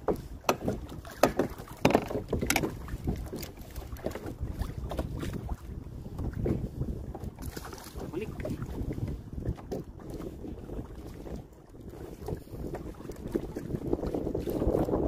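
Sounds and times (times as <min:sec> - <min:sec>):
knocks and clicks of fishing gear: 0:00.0 - 0:04.3
water rumbling around kayak: 0:00.0 - 0:15.0
wind on microphone: 0:00.0 - 0:15.0.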